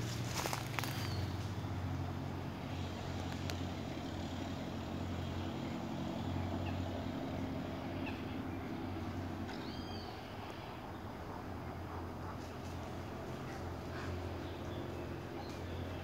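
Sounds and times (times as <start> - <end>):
distant road traffic rumble: 0.0 - 16.0
bird call: 9.5 - 10.8.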